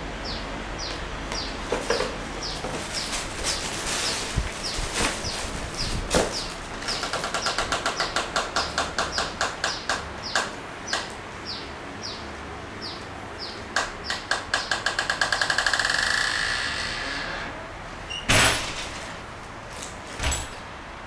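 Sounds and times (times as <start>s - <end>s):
bird chirping: 0.2s - 14.8s.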